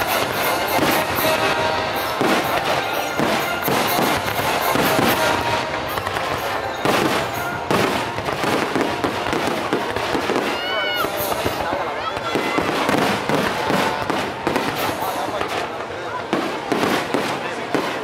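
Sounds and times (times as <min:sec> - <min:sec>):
music: 0:00.0 - 0:15.6
fireworks bursting: 0:00.0 - 0:18.0.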